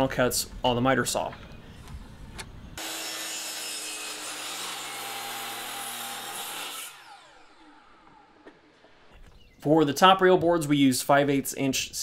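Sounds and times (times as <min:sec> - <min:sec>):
miter saw cutting wood: 0:02.8 - 0:09.1
saw blade spinning down: 0:02.8 - 0:09.1.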